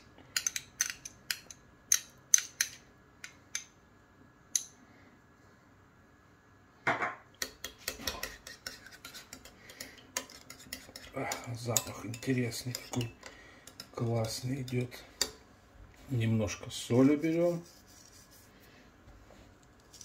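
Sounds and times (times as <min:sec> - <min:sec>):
teaspoon clinking against glass dish: 0:07.4 - 0:15.4.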